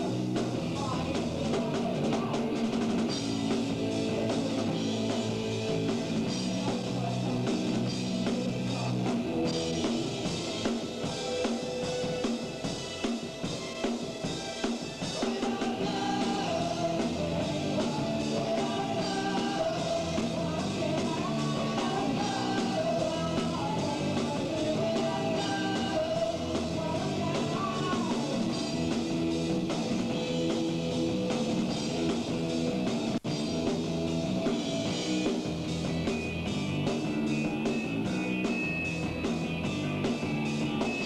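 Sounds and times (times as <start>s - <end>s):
rock band playing live: 0.0s - 41.0s
person singing: 0.6s - 3.1s, 6.3s - 9.6s, 15.1s - 28.9s.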